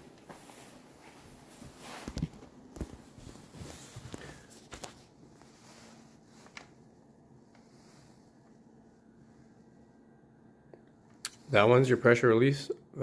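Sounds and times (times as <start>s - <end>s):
handling rustles: 0.0s - 8.8s
weak steady hum: 0.0s - 13.0s.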